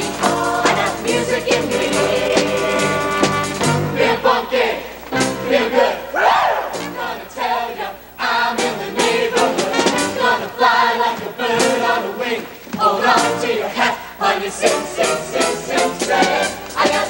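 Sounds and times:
mixed choir singing in harmony: 0.0s - 17.0s
singers breathing: 7.9s - 8.2s.

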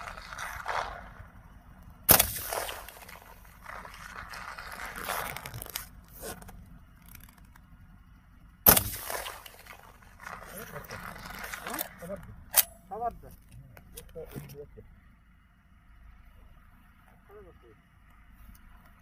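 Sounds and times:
shotgun shots: 0.0s - 1.5s, 2.1s - 5.5s, 8.6s - 12.9s.

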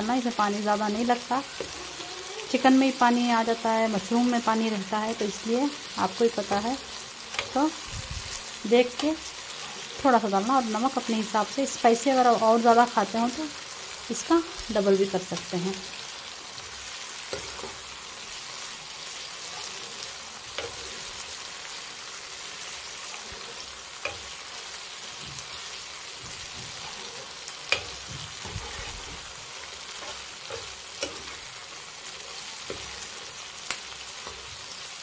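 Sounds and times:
food sizzling in oil: 0.0s - 35.0s
metal spatula scraping a pan: 1.2s - 3.1s, 5.1s - 11.1s, 16.5s - 34.9s.

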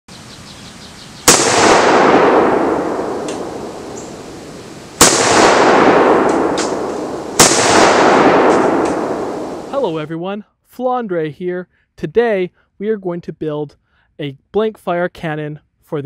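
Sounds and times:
shotgun blank shots with echo: 1.3s - 4.4s, 5.0s - 9.7s.

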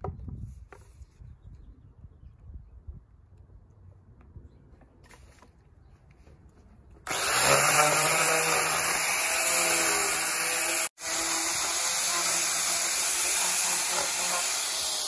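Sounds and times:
angle grinder cutting wood: 7.0s - 15.0s.

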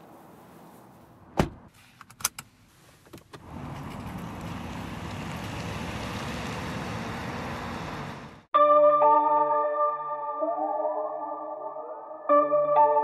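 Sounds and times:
car door clicks and knocks: 1.4s - 1.6s
cars pulling away slowly: 3.4s - 8.5s.

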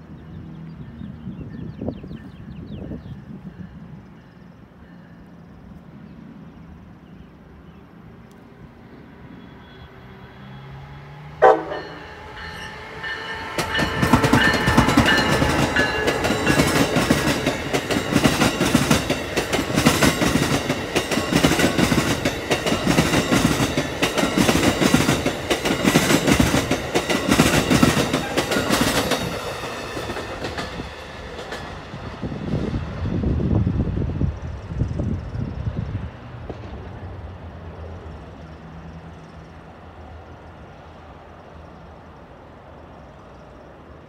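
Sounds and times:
train horn blast: 11.4s - 16.1s
train wheels clattering over rails: 11.5s - 32.8s.

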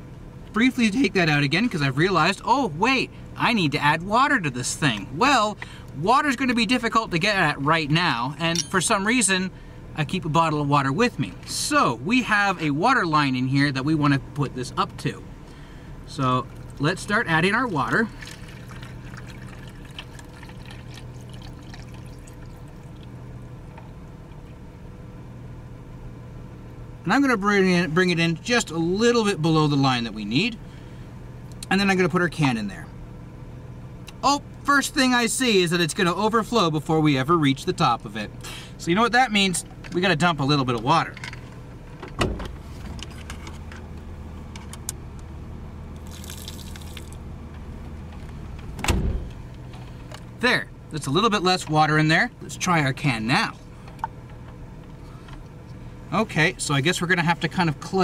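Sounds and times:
steady low hum: 0.0s - 58.0s
water pouring into plastic jug: 17.9s - 23.1s, 46.0s - 47.2s.

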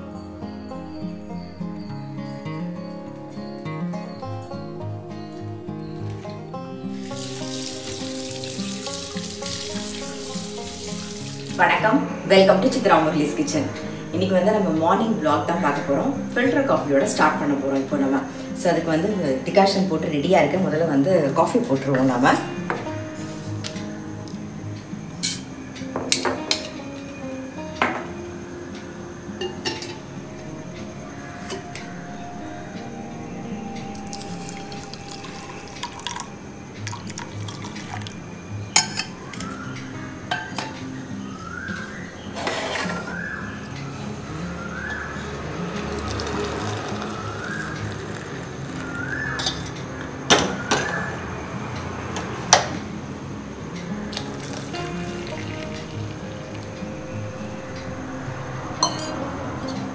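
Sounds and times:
faint background music: 0.0s - 59.9s
metal vessels clinking: 25.2s - 27.2s, 29.4s - 30.1s, 34.0s - 38.1s, 38.7s - 39.6s, 42.3s - 43.3s, 58.8s - 59.9s
steel kitchenware clinking: 58.8s - 59.8s.

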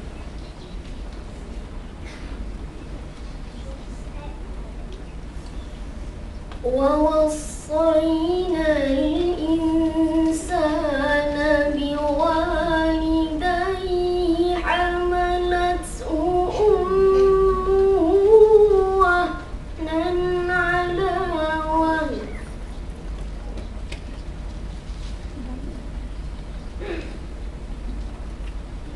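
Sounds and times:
boy reciting melodically: 6.6s - 22.5s.

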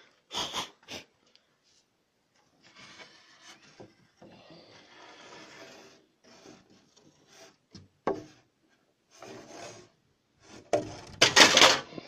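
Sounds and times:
wood scraping against wood: 2.4s - 12.0s.

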